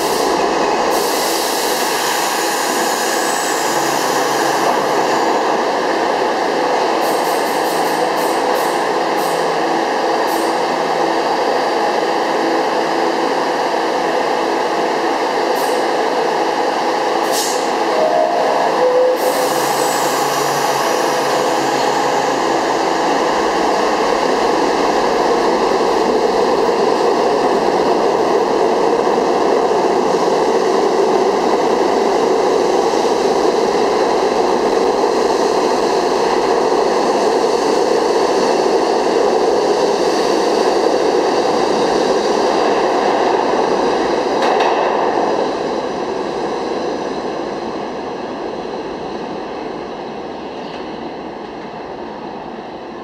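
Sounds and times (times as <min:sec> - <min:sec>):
hiss of air: 0:00.0 - 0:04.6, 0:17.2 - 0:17.8
subway train rumbling: 0:00.0 - 0:53.0.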